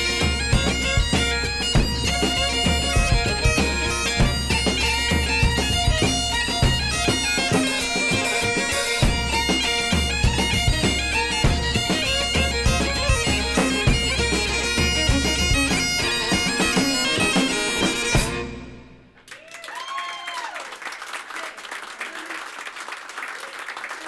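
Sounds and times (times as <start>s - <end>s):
frame drum: 0.0s - 18.6s
bagpipes with drones: 0.0s - 18.9s
fiddle: 0.0s - 19.0s
drum kit: 0.0s - 19.2s
audience applauding: 19.2s - 24.0s
cheers: 19.3s - 24.0s.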